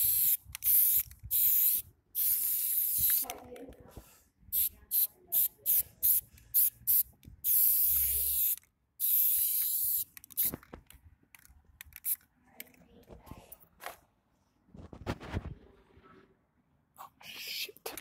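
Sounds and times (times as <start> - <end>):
spray paint can hissing: 0.0 - 3.2, 4.5 - 10.6.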